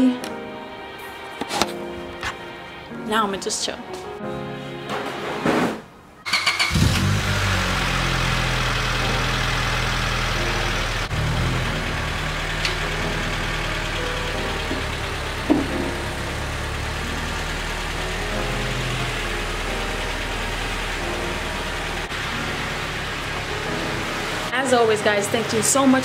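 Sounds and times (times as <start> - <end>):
car engine starting and idling: 6.2 - 26.0.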